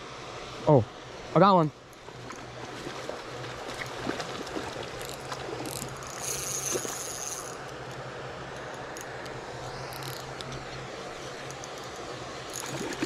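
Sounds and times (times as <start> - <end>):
fishing reel gears whirring: 1.9 - 13.0
high-pitched whine: 5.6 - 13.0.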